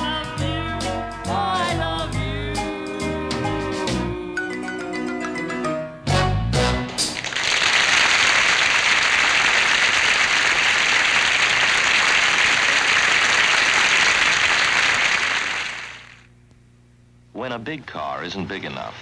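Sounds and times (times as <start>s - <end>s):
studio audience applauding: 7.0s - 16.3s.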